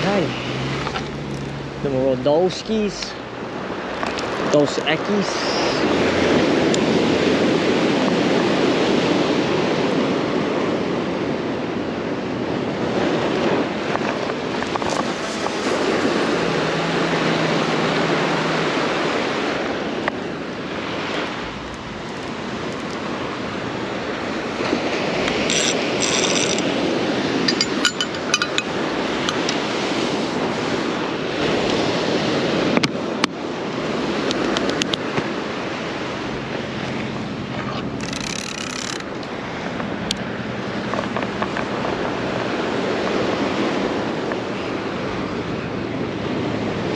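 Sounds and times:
ocean surf on shore: 0.0 - 46.9
light clinks: 27.4 - 29.6.

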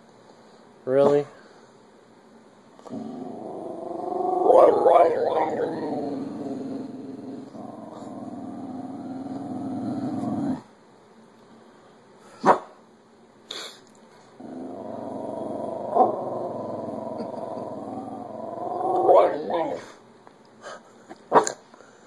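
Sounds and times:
dog growling: 2.8 - 10.7, 14.4 - 20.0.

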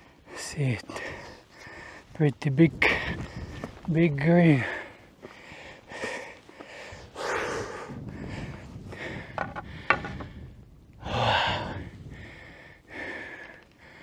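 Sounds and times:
person breathing hard: 0.9 - 2.1, 4.6 - 14.0.

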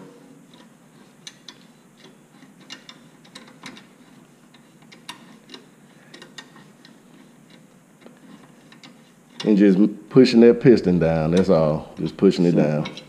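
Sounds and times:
c-clamp screw clicking: 0.5 - 9.6.

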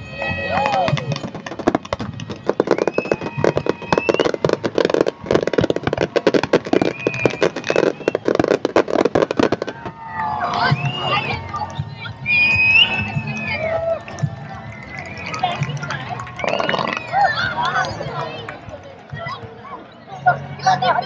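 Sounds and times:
fireworks bangs and crackling: 0.5 - 12.0, 14.2 - 17.2.

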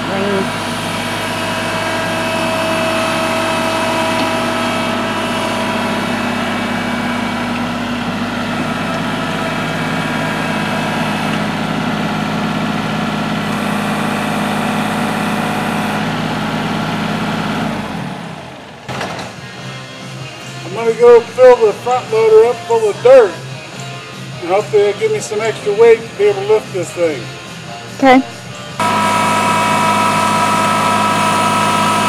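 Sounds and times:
faint engine whine: 0.0 - 32.0
tractor diesel engine running: 0.0 - 32.0.

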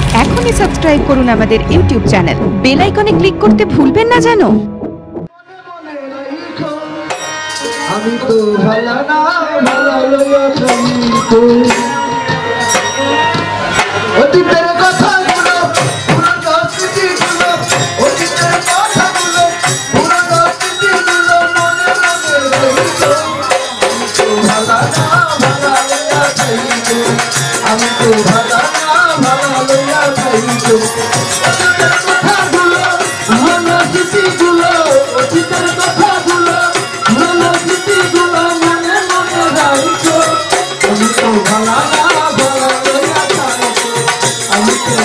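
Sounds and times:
hand percussion: 0.0 - 2.0, 7.0 - 45.0
drums: 0.0 - 5.4, 9.5 - 45.0
man singing folk song: 14.2 - 45.0.

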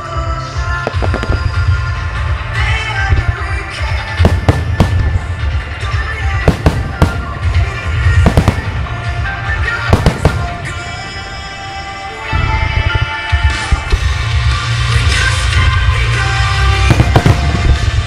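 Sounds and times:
loud music: 0.0 - 18.0
firework shells bursting: 4.1 - 11.5, 16.8 - 18.0.

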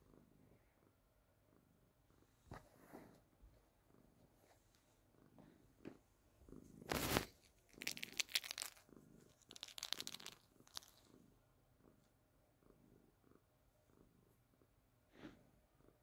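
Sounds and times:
cat purring: 0.0 - 16.0
crinkling and rustling: 6.8 - 11.1.

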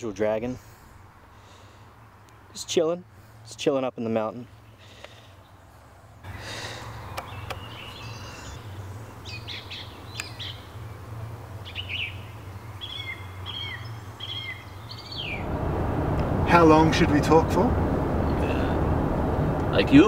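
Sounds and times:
birds chirping and whistling: 7.0 - 10.7, 11.6 - 15.5
steady low rumble: 15.3 - 20.0.

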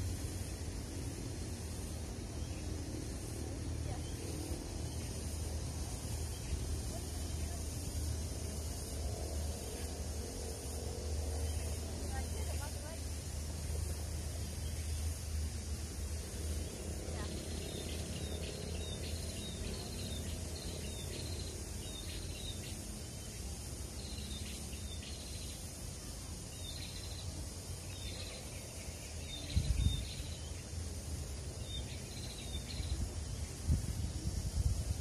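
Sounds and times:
steady low rumble: 0.0 - 24.2.

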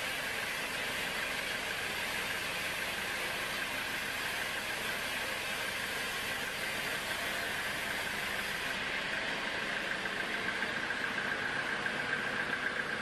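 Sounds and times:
band saw cutting log: 0.2 - 8.9.

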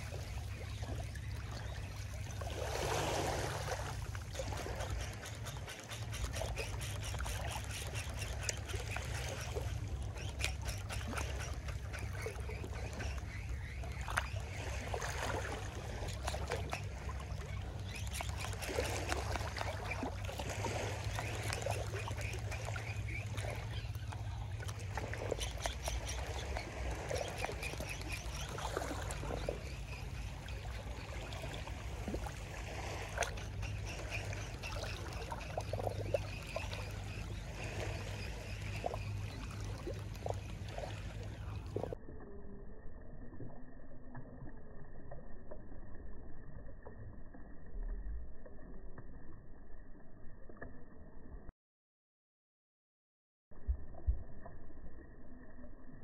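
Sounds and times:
small waves washing on beach: 0.0 - 42.0.

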